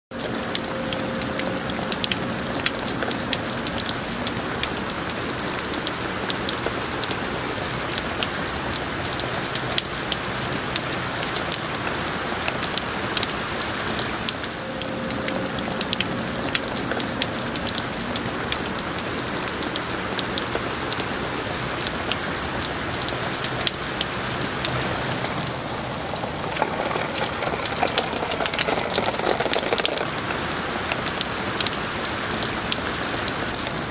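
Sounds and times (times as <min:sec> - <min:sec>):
rain falling on ground and trees: 0:00.1 - 0:33.9.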